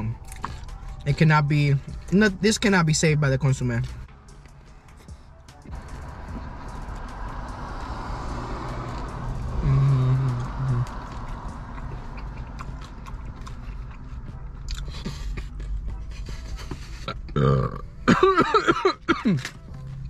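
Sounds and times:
person humming: 9.5 - 11.1
man burping loudly: 9.6 - 10.8, 17.3 - 19.4.

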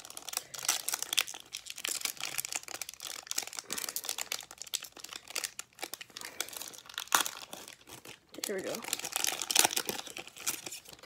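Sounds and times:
wrapper crinkling and tearing: 0.0 - 11.0.

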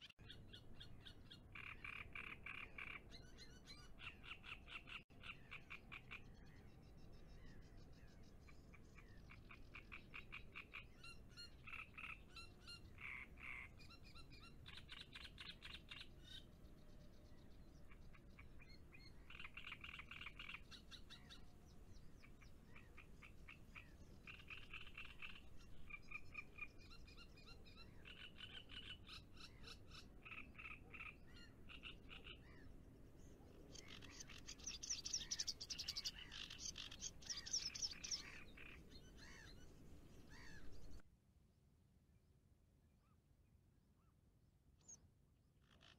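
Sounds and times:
frogs croaking: 9.3 - 13.8, 22.3 - 27.2, 28.0 - 32.6, 33.7 - 39.4.

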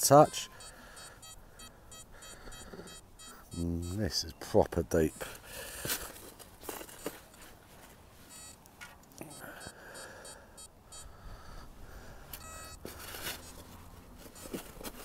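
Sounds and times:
metal detector beeps: 0.0 - 5.4, 6.9 - 7.4, 8.3 - 8.6, 9.2 - 11.2, 12.3 - 15.0.

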